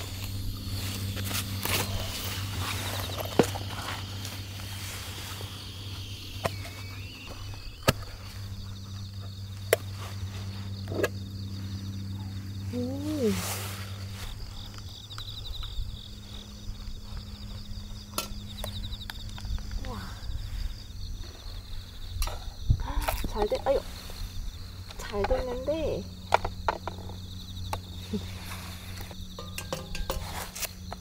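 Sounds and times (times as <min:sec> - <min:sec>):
crickets trilling: 0:00.0 - 0:31.0
low steady hum: 0:00.0 - 0:31.0
metal pot lid clinking: 0:29.4 - 0:30.4.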